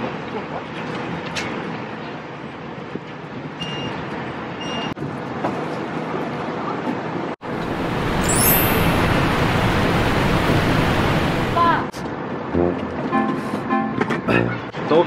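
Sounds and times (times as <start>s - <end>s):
distant traffic: 7.4s - 15.0s.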